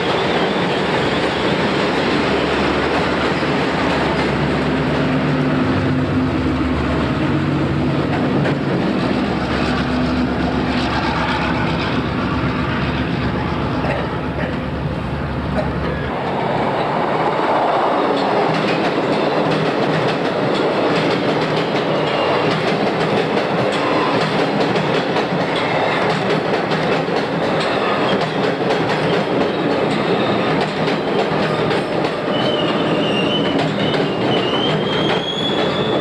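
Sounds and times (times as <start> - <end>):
high wheel squeal: 0.0 - 1.8, 21.9 - 22.5, 29.2 - 36.0
electric train rumbling past: 0.0 - 36.0.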